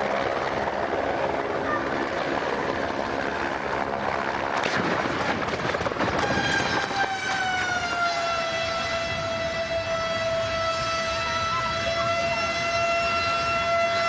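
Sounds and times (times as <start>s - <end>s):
helicopter crash clattering: 4.5s - 7.6s.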